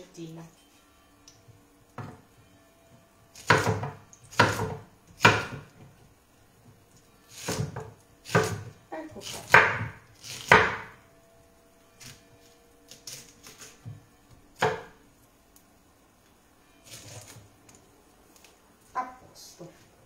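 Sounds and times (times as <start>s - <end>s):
knife chopping on wooden board: 3.4s - 5.7s, 7.3s - 10.9s, 14.6s - 14.9s.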